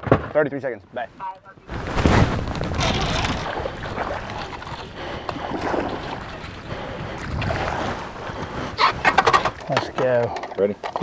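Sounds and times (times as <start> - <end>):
wind on microphone: 1.7 - 9.7
water splashing against boat hull: 1.7 - 11.0.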